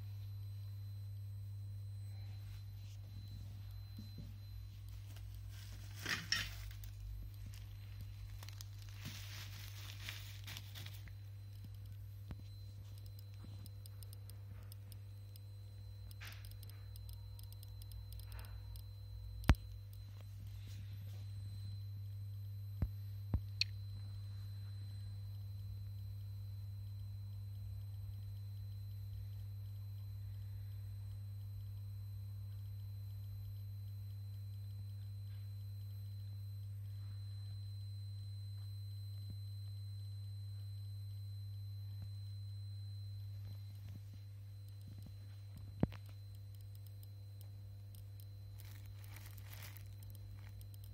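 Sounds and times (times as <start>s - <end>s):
low electrical hum: 0.0s - 50.9s
sharp clicks: 11.5s - 20.0s.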